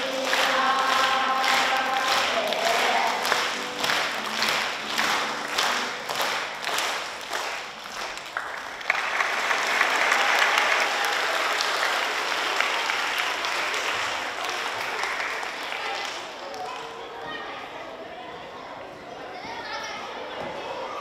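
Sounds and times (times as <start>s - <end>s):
audience applause: 0.0s - 16.8s
people clapping in time: 0.0s - 17.0s.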